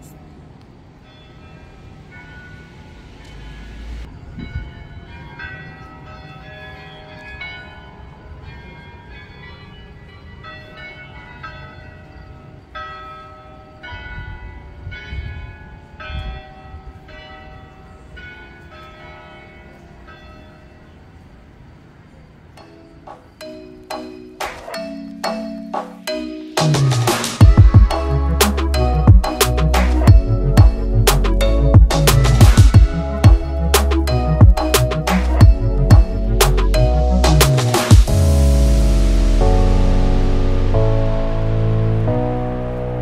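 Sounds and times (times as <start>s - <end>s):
church bells ringing: 0.9s - 21.4s, 22.6s - 43.0s
low thuds: 27.4s - 38.2s.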